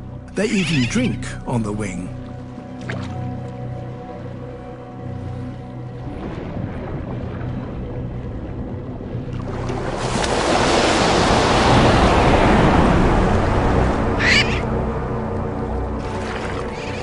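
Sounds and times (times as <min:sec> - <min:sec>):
faint background music: 0:00.0 - 0:17.0
sea waves rushing: 0:06.0 - 0:17.0.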